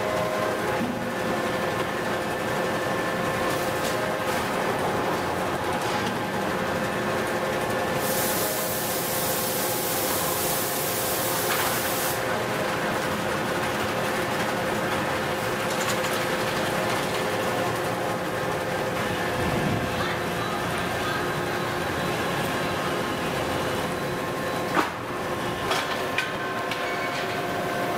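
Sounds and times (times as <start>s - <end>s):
machinery humming: 0.0s - 27.9s
loud hiss: 8.0s - 12.2s.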